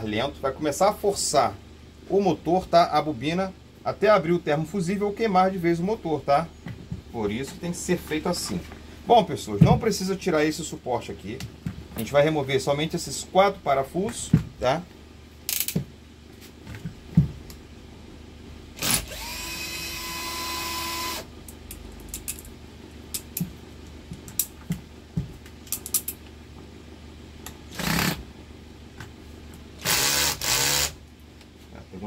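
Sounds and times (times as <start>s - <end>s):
cordless drill whining: 18.8s - 21.3s, 29.8s - 31.0s.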